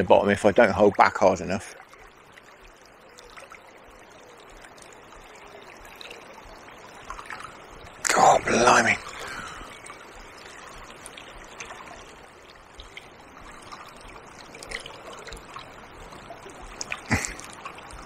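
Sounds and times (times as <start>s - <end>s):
river water flowing: 0.0s - 18.0s
faint clicks: 12.7s - 18.0s.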